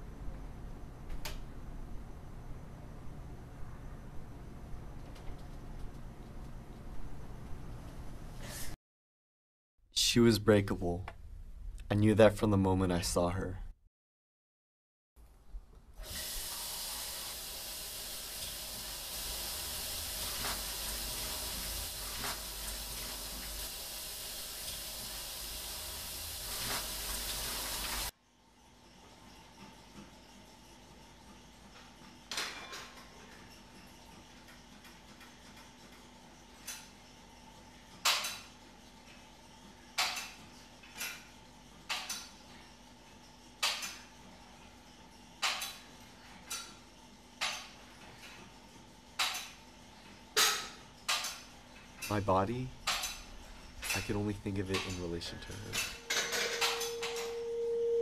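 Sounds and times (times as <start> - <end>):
faint steady hum: 0.0 - 8.8, 51.6 - 58.0
running water hissing: 16.0 - 28.1.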